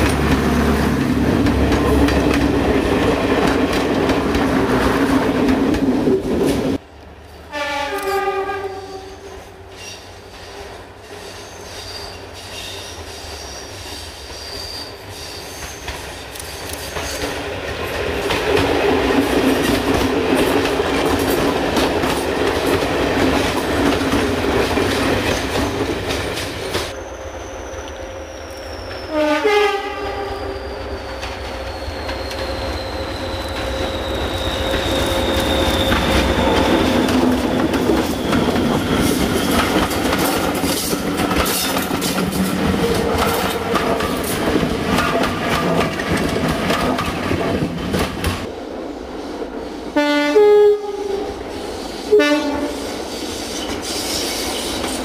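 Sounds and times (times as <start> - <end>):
train wheels over rail joints: 0.0 - 50.0, 51.4 - 55.0
diesel train passing: 0.0 - 55.0
two-tone train horn: 7.4 - 9.6, 27.1 - 37.1, 50.0 - 51.4, 52.1 - 53.0
locomotive horn blast: 7.5 - 9.5, 29.0 - 31.6, 50.0 - 51.4, 52.1 - 53.0
locomotive falling whistle: 27.0 - 38.5.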